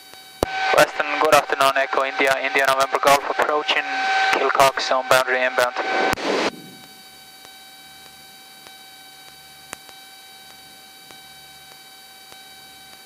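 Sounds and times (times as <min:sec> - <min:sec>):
whining tones: 0:00.0 - 0:11.7
electrical hiss and hum: 0:00.0 - 0:13.0
faint ticks: 0:06.8 - 0:13.0.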